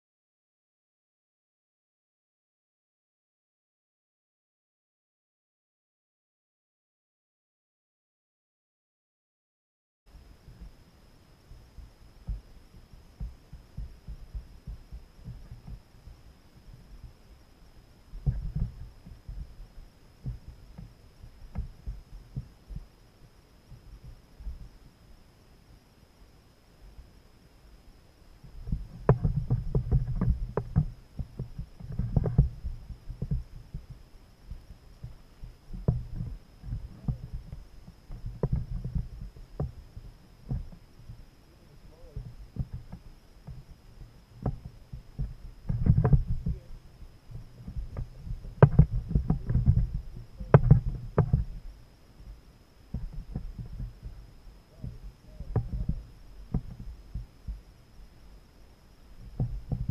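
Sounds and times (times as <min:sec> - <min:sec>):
thumps on kayak hull: 0:47.7 - 0:51.6.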